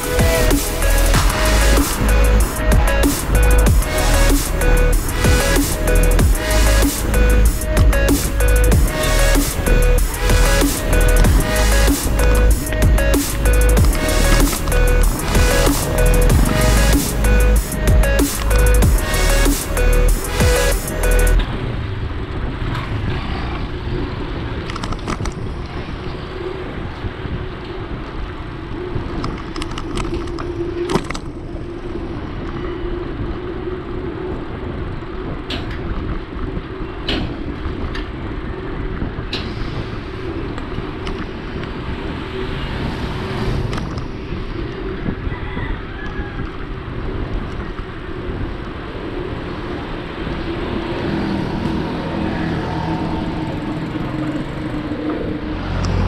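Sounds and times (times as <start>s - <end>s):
passing traffic: 0.0s - 56.0s
wind and road noise: 0.0s - 56.0s.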